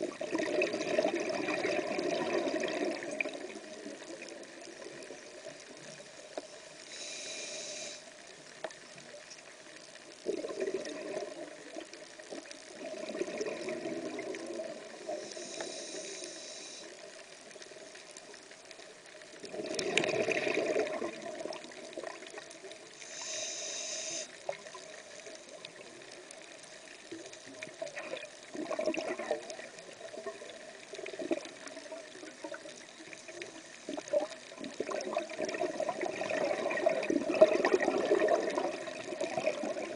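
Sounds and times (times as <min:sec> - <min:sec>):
exhaled bubbles: 0:00.0 - 0:05.4, 0:10.2 - 0:15.3, 0:19.4 - 0:22.6, 0:27.7 - 0:39.9
muffled underwater ambience: 0:00.0 - 0:39.9
regulator inhalation hiss: 0:06.6 - 0:08.2, 0:15.0 - 0:17.2, 0:23.0 - 0:24.5.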